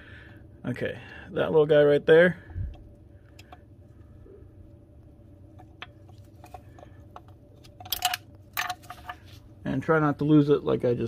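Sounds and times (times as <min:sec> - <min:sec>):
tools clicking and tapping: 0:05.5 - 0:09.2.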